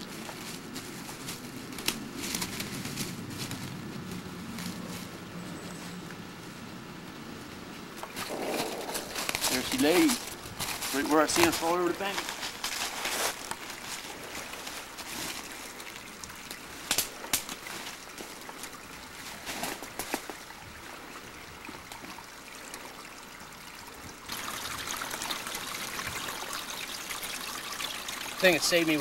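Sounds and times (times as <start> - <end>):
trickle of running water: 0.0 - 2.7, 7.9 - 29.0
footsteps crunching through dry leaves: 0.0 - 6.0, 8.1 - 20.4
twigs snapping: 0.1 - 5.1, 8.0 - 20.4.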